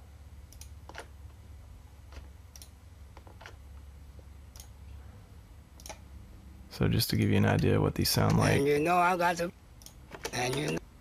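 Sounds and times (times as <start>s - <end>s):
faint low hum: 0.0s - 11.0s
computer mouse clicking: 0.5s - 1.1s, 4.5s - 4.8s, 5.8s - 6.0s.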